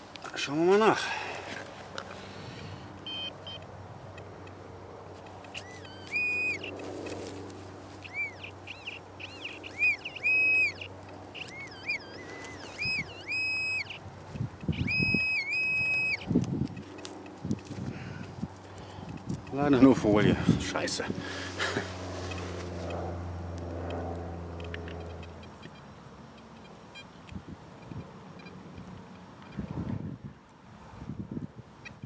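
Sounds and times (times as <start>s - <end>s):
metal detector pinpointer beeping: 3.0s - 4.6s, 5.2s - 7.2s, 8.0s - 17.1s, 24.6s - 28.6s
soil crunching and rustling: 5.1s - 10.1s, 10.8s - 13.3s, 16.1s - 23.7s.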